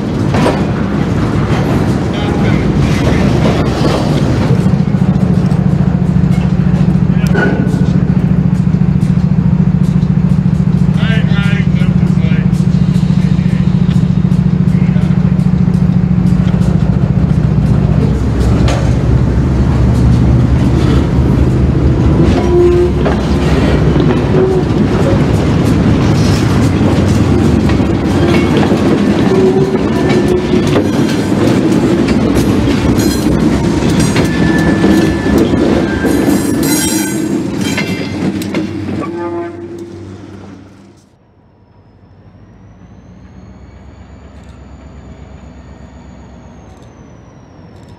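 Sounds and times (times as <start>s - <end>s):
wheels clicking over rail joints: 0.0s - 40.0s
diesel locomotive running: 0.0s - 47.9s
wheel squeals: 28.1s - 38.3s, 41.7s - 47.9s.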